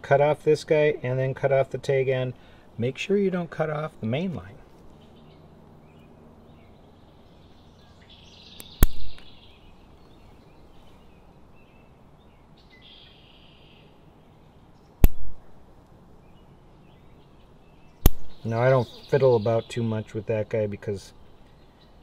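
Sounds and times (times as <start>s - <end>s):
scissors snipping fishing line: 15.0s - 15.4s, 18.0s - 18.3s.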